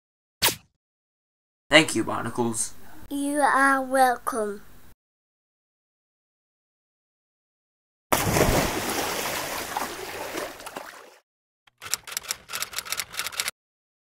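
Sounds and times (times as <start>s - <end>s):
sharp clicks: 11.7s - 13.5s.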